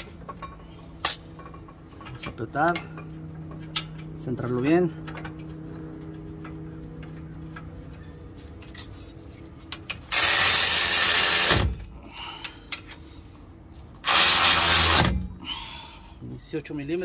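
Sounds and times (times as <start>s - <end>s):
impact wrench bursts: 10.1s - 11.9s, 14.0s - 15.4s
light clicks of parts handled: 12.2s - 13.9s.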